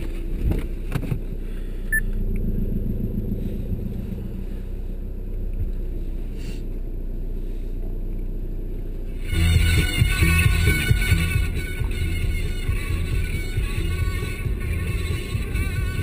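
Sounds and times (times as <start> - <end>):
car engine low hum from cabin: 0.0 - 16.0.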